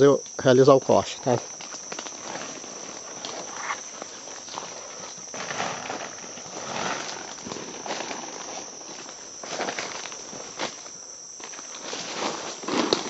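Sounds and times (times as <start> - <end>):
insects droning: 0.0 - 13.0
footsteps through leaf litter: 11.8 - 13.0.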